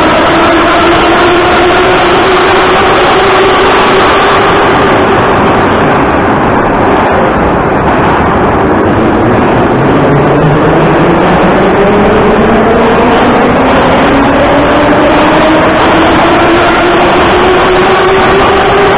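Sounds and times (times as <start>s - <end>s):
train motor whine: 0.0s - 6.5s
train wheels rumbling on rail: 0.0s - 18.9s.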